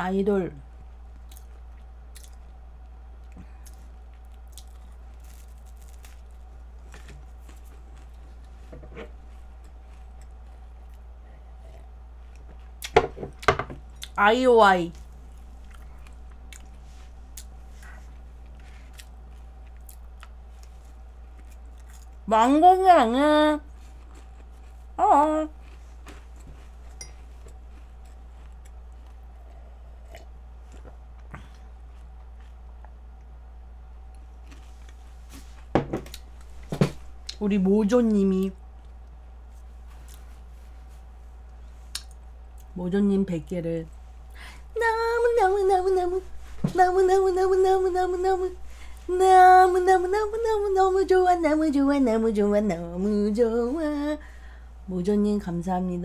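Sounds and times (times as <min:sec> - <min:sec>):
low electrical hum: 0:00.0 - 0:56.0
chewing flaky pastry: 0:01.1 - 0:12.9, 0:15.0 - 0:22.3, 0:23.6 - 0:33.4, 0:34.0 - 0:35.5
chewing and mouth clicks: 0:01.2 - 0:02.6, 0:15.4 - 0:17.6, 0:18.5 - 0:22.2, 0:41.9 - 0:42.8.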